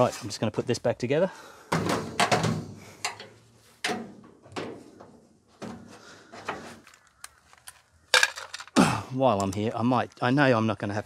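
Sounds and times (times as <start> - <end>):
sheet metal clunks and knocks: 1.7 - 5.9.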